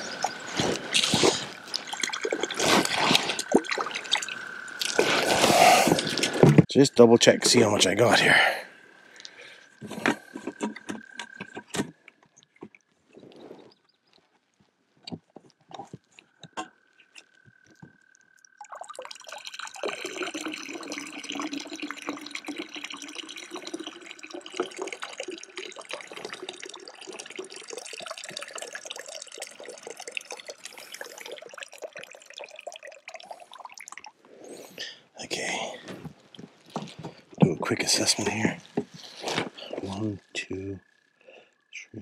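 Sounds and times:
water pouring and splashing: 0.0s - 6.7s, 17.7s - 40.2s.

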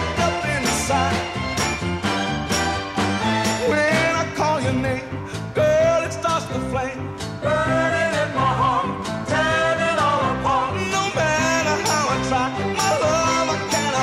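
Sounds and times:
song with sung vocal: 0.0s - 1.6s, 3.5s - 14.0s
band playing steady beat: 0.0s - 4.7s.

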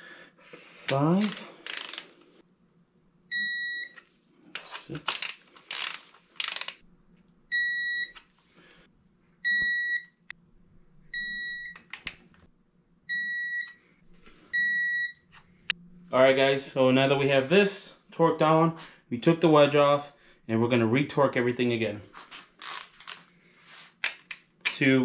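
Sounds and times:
wrench ratcheting on bolts: 1.2s - 2.1s, 5.0s - 6.8s.

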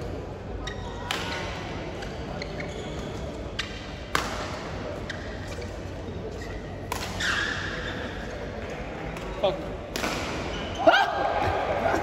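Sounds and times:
shoes squeaking on court floor: 0.6s - 1.4s, 2.0s - 3.8s, 4.9s - 8.6s
rackets striking shuttlecock: 3.6s - 4.6s, 6.8s - 7.4s, 9.9s - 10.5s.

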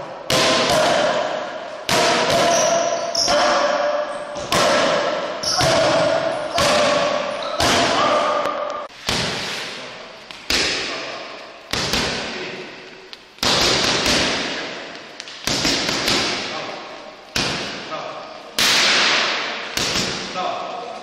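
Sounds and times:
boxing gloves hitting mitts: 10.2s - 11.1s, 11.7s - 12.4s, 13.4s - 16.6s, 17.3s - 17.9s, 18.6s - 20.3s.

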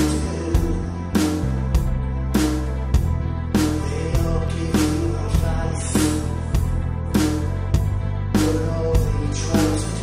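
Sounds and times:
song with steady drum beat: 0.0s - 10.0s
sustained bass notes: 0.0s - 10.0s.

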